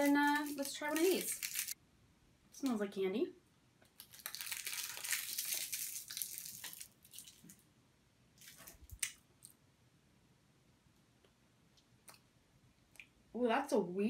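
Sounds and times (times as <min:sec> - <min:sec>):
plastic wrapper crinkling: 0:00.0 - 0:01.8, 0:03.9 - 0:07.6
wet sucking clicks and smacks: 0:08.4 - 0:09.6.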